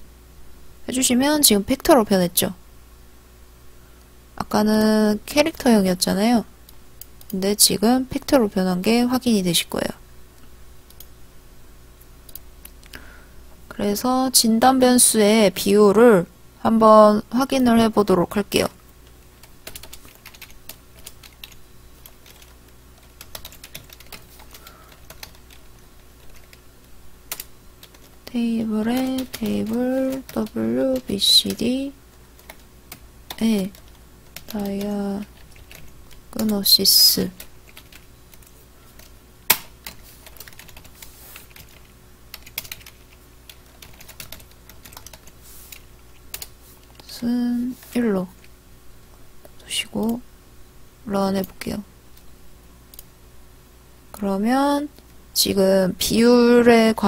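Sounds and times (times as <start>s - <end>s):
computer keyboard typing: 19.4s - 26.6s, 27.3s - 31.8s, 32.4s - 36.8s, 37.4s - 47.1s.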